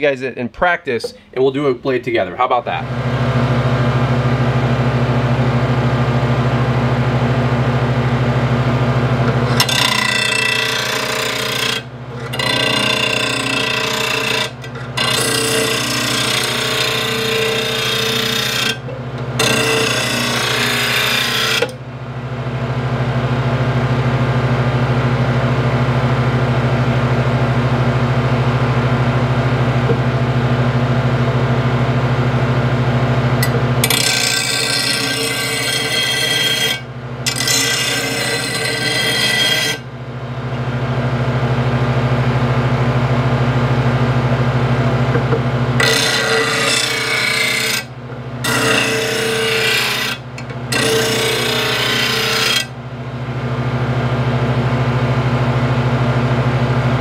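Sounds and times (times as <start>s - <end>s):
grinder motor humming: 1.0s - 21.8s, 27.7s - 57.0s
blade grinding on disc: 9.3s - 21.8s, 33.4s - 39.9s, 45.1s - 52.8s.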